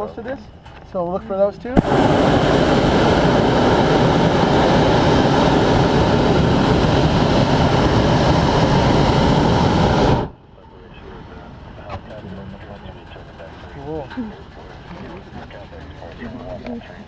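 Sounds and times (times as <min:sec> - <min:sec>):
propane burner roaring: 0:01.8 - 0:16.8.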